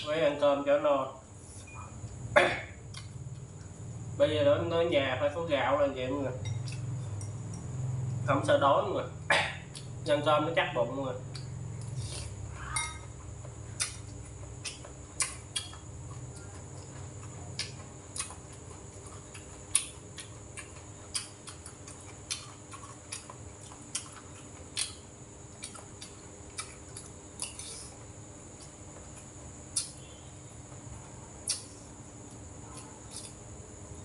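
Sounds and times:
person chewing: 2.8s - 3.8s, 6.6s - 7.6s, 9.7s - 10.0s, 11.3s - 12.5s, 13.2s - 30.0s, 31.4s - 33.4s.

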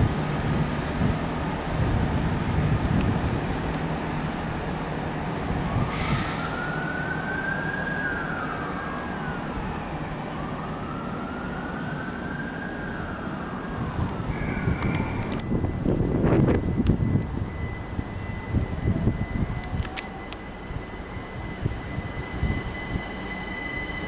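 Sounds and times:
station and traffic rumble: 0.0s - 24.0s
distant siren wailing: 4.9s - 24.0s.

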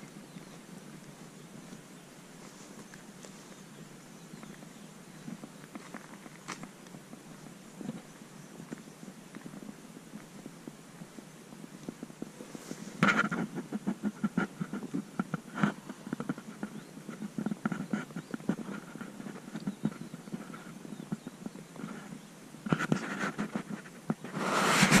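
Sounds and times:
camera rattling and knocking: 13.0s - 22.0s.

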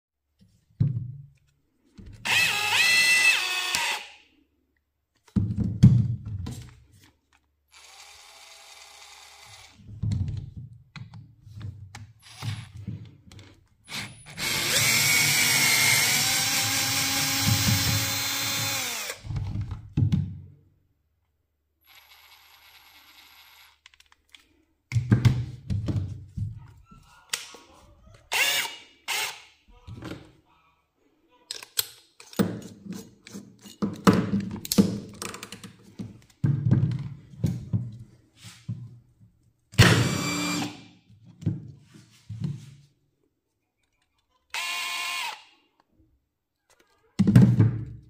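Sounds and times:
knocks and handling thuds: 0.4s - 2.2s, 5.2s - 7.1s, 9.9s - 13.6s, 24.9s - 27.6s, 29.7s - 30.4s, 33.7s - 39.4s, 41.2s - 42.9s
cordless drill motor running: 2.2s - 4.1s, 7.7s - 9.8s, 12.2s - 12.6s, 13.9s - 19.2s, 21.9s - 23.8s, 28.3s - 29.4s, 39.8s - 40.8s, 44.5s - 45.4s.

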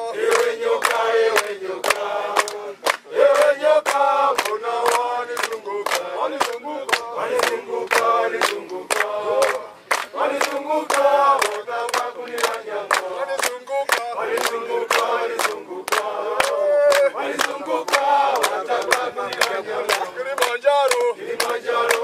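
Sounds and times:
group singing a chant: 0.0s - 22.0s.

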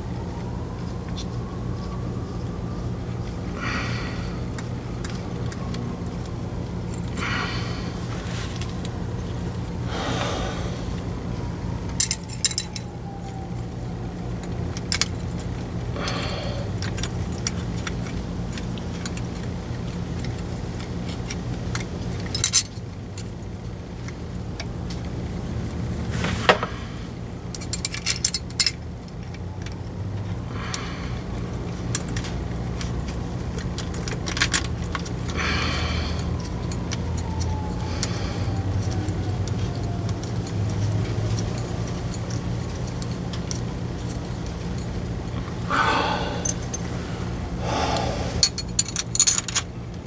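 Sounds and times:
steady low hum: 0.0s - 50.0s
metal tools clinking: 11.9s - 13.4s, 14.4s - 23.2s, 27.5s - 29.6s, 36.4s - 47.0s, 48.4s - 49.7s.

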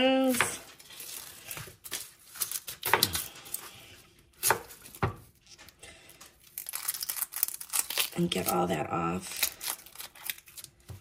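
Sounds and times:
knife chopping on cutting board: 4.4s - 5.2s.

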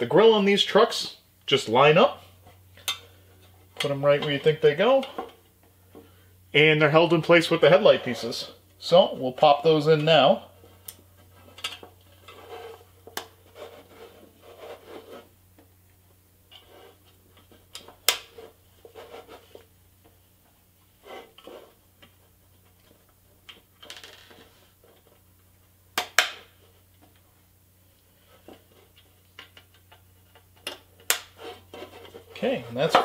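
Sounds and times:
toy scraping on wooden bench: 12.2s - 15.3s, 16.5s - 17.1s, 21.0s - 21.8s, 31.4s - 32.4s.

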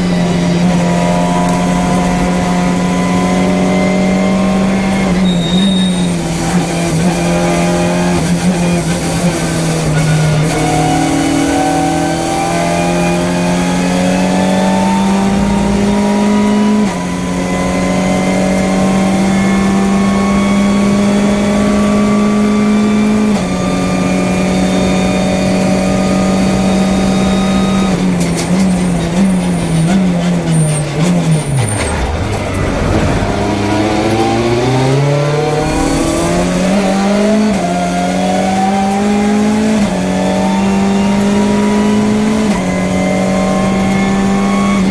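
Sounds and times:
downshifts and throttle blips: 0.0s - 44.9s
race car engine accelerating: 0.0s - 44.9s.

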